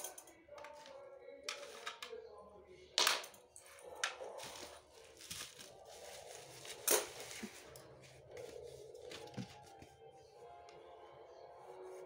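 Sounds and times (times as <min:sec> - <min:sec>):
bubble wrap crackles: 0:04.4 - 0:07.8
bubble wrap crinkling: 0:04.4 - 0:09.8.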